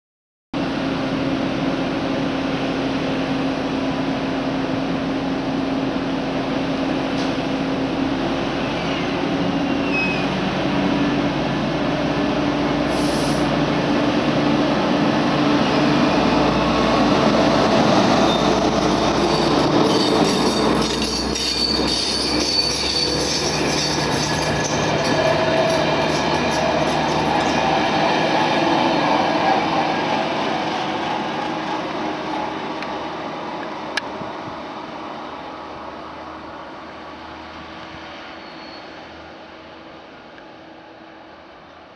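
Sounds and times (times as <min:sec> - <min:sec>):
diesel locomotive running: 0:00.6 - 0:41.9
high wheel squeal: 0:08.6 - 0:10.5, 0:18.1 - 0:28.2, 0:38.3 - 0:39.1.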